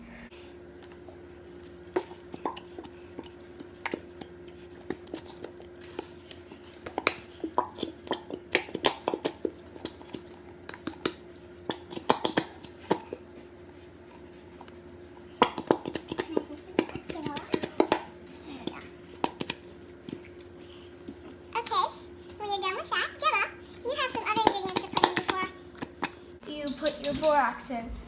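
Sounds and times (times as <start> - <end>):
glue bottles clicking against bowls: 6.7 - 13.2, 15.4 - 20.5, 24.0 - 27.6.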